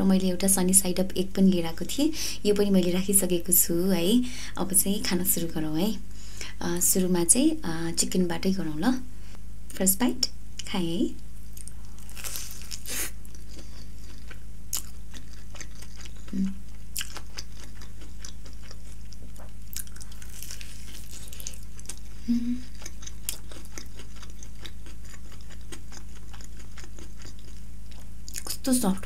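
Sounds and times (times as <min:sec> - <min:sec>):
steady low hum: 0:00.0 - 0:29.0
crunchy chewing: 0:11.5 - 0:28.6
person humming mm: 0:16.3 - 0:16.6, 0:22.2 - 0:22.7.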